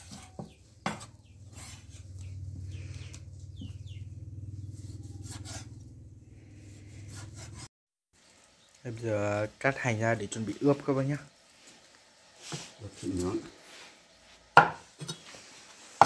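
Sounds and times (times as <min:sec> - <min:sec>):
chickens peeping: 0:01.2 - 0:04.8
knife slicing meat on wood: 0:04.8 - 0:05.8.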